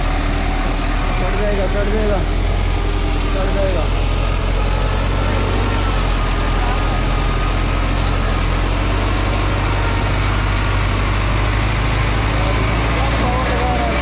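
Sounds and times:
tractor diesel engine under load: 0.0 - 14.0.

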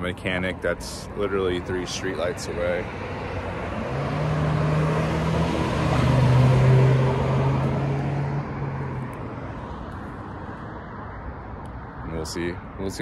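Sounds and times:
vehicle driving past: 2.2 - 10.9.

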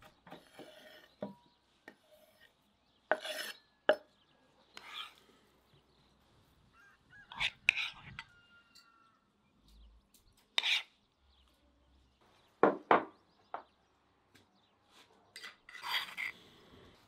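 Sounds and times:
spoon scraping a bowl: 0.3 - 5.3, 7.2 - 9.1, 10.6 - 11.0, 15.4 - 16.4.

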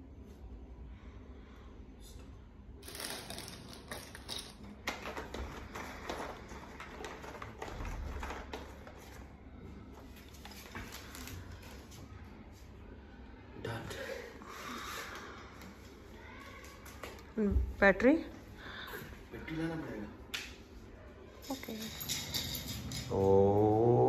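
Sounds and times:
plastic parts clicking and rattling: 2.8 - 9.2.

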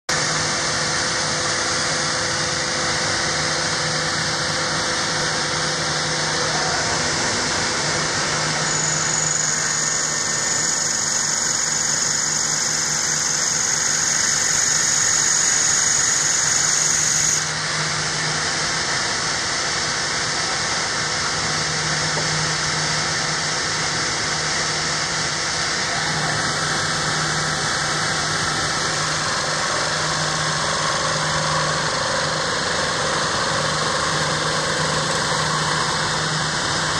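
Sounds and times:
high steady whine: 0.1 - 36.9
gouge cutting spinning wood: 0.2 - 18.3, 25.7 - 36.9
wood lathe running: 4.1 - 17.6, 25.8 - 36.9.

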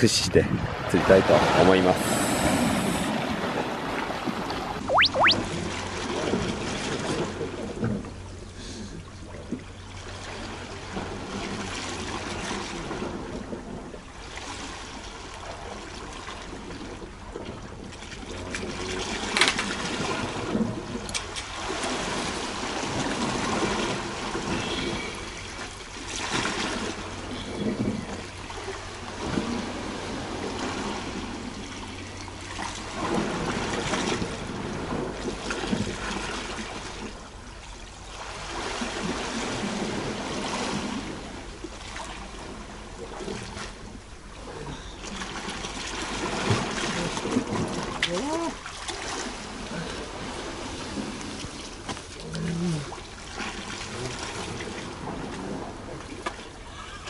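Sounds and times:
sea washing against rocks: 17.8 - 25.1, 45.2 - 56.4.

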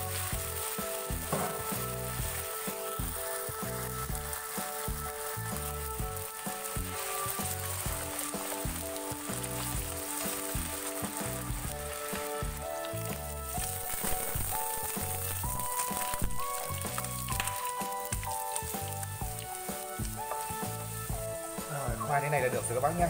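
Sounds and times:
background music with a beat: 0.0 - 23.0
food sizzling in hot oil: 0.0 - 23.0.

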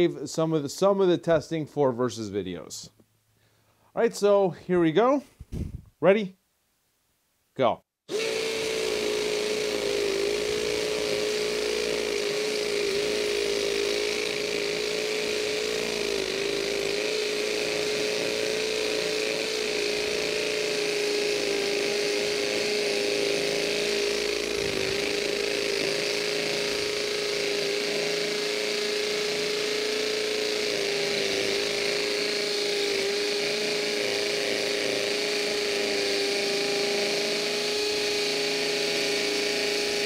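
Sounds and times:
hammer drill boring into concrete: 8.1 - 40.0.

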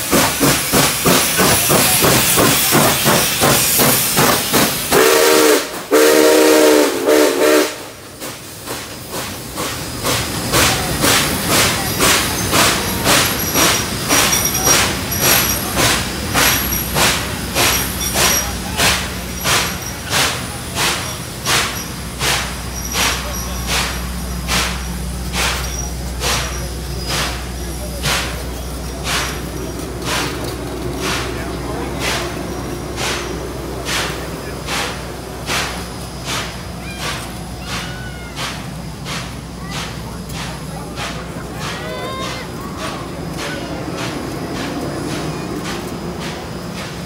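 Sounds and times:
hissing steam: 0.0 - 47.0
railway cars rolling: 0.0 - 47.0
steam locomotive exhaust chuffs: 0.0 - 47.0
steam whistle blasts: 4.9 - 8.0.

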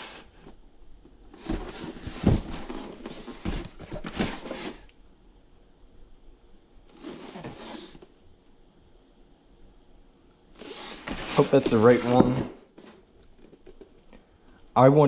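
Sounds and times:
cardboard rubbing and scraping: 1.4 - 4.8, 7.0 - 8.0, 10.6 - 13.0.

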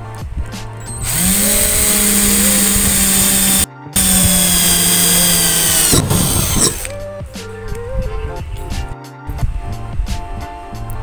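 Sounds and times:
cordless drill drilling into metal: 1.0 - 6.9.

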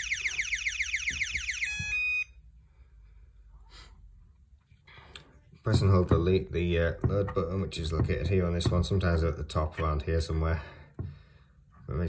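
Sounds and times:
intruder alarm sweeping: 0.0 - 2.4.

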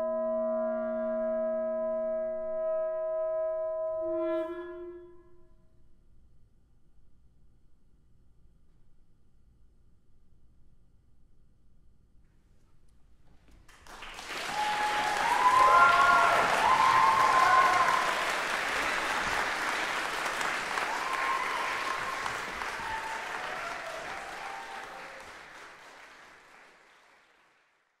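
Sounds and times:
audience applauding: 13.7 - 28.0.

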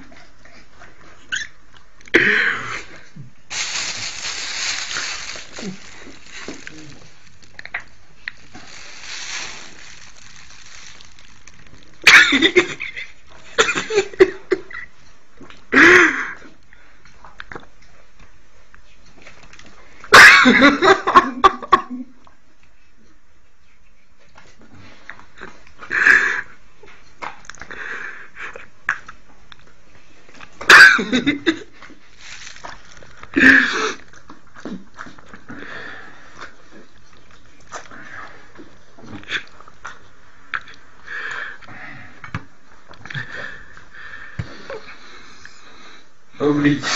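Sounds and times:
person laughing and coughing: 12.0 - 12.9, 13.6 - 14.7, 20.1 - 22.0, 30.7 - 31.7.

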